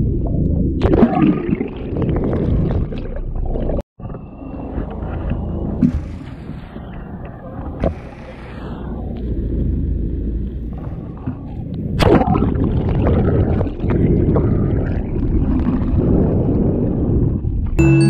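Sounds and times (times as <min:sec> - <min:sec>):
water around boat hull: 0:00.0 - 0:18.0
boat engine rumbling: 0:04.0 - 0:15.6.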